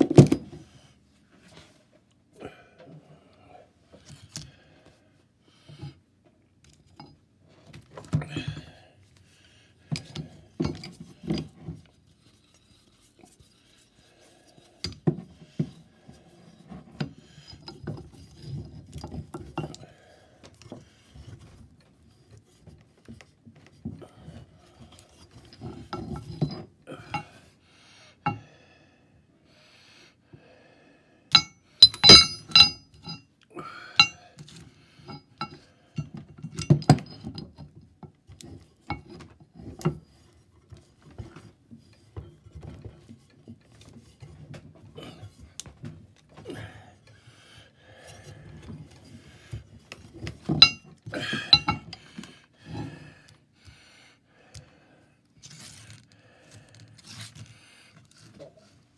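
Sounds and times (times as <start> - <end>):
metal plates clinking and scraping: 31.4 - 33.2, 50.5 - 52.0.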